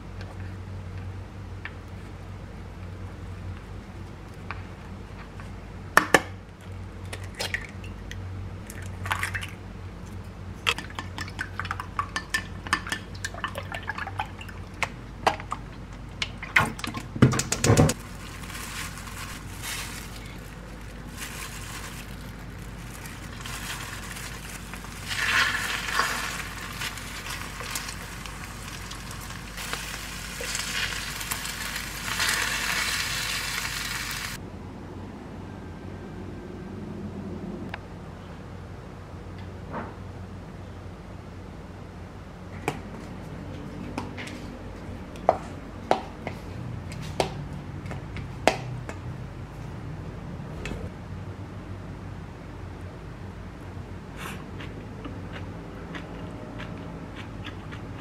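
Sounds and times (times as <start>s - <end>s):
food sizzling in frying pan: 23.2s - 34.4s.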